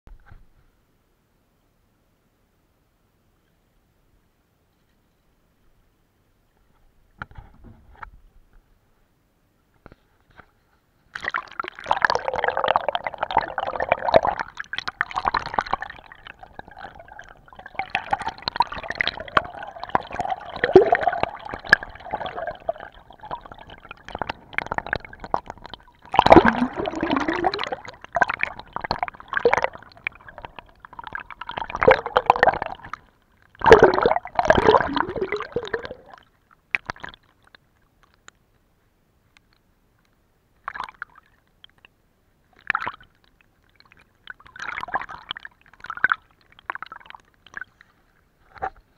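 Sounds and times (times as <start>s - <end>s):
water gurgling and rushing: 11.2s - 36.2s.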